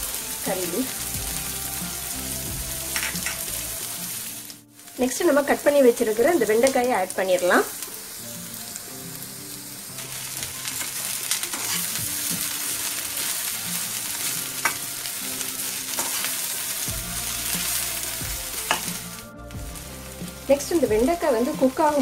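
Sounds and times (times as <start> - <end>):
okra sizzling in hot oil: 0.0 - 22.0
spatula scraping and clinking pan: 10.8 - 12.0.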